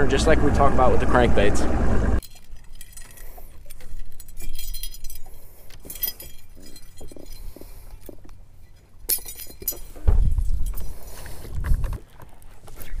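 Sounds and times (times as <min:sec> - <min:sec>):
metal fishing tackle clinking: 0:02.2 - 0:11.5.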